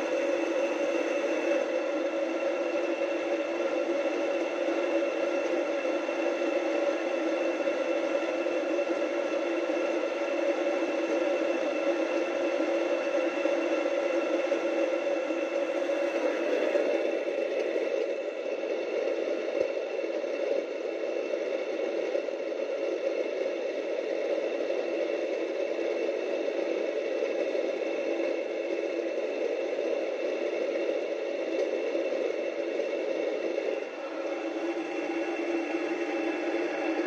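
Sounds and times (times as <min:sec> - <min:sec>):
electric flour mill grinding: 0:00.0 - 0:22.2, 0:29.9 - 0:37.0.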